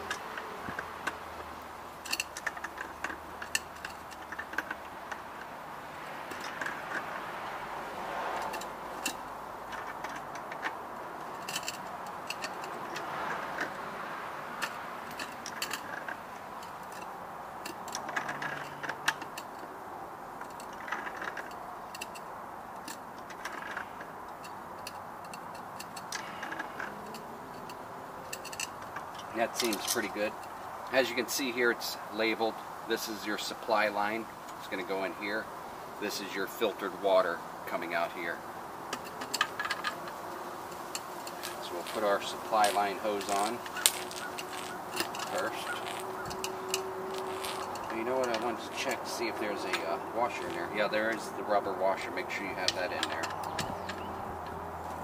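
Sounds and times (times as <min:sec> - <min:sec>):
background noise: 0:00.0 - 0:55.0
clicks and clinks of fittings: 0:02.0 - 0:05.5, 0:08.4 - 0:13.9, 0:14.5 - 0:19.7, 0:20.4 - 0:31.4, 0:38.9 - 0:55.0.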